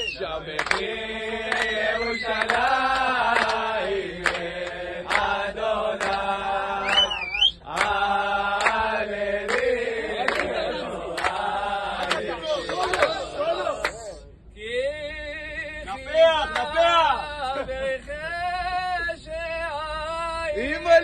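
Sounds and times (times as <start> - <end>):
sliding whistle: 0.0 - 0.3, 1.5 - 2.7, 6.8 - 7.7
sharp hand claps: 0.0 - 0.9, 1.5 - 5.4, 6.0 - 6.3, 6.9 - 13.2
group singing in unison: 0.0 - 19.0.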